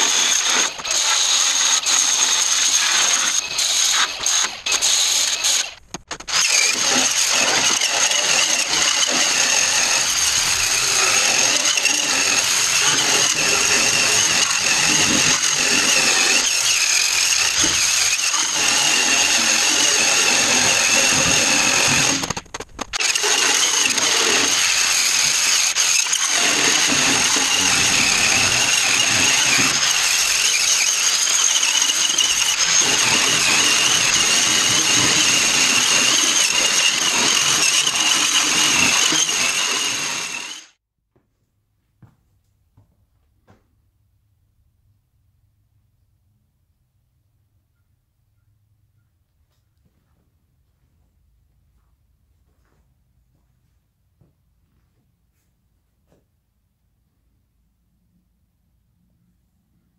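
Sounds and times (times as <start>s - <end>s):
power tool grinding metal: 0.0s - 40.8s.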